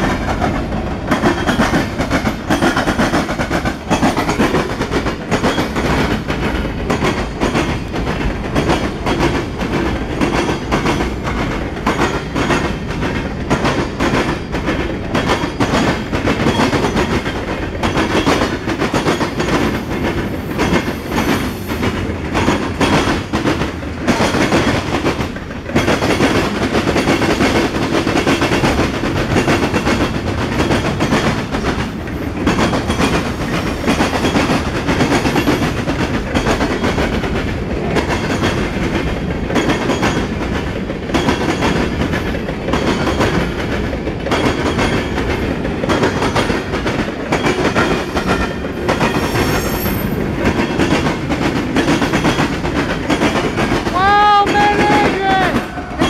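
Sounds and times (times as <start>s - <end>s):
train wheels rumbling on rails: 0.0s - 56.0s
wheels clickety-clack over rail joints: 0.0s - 56.0s.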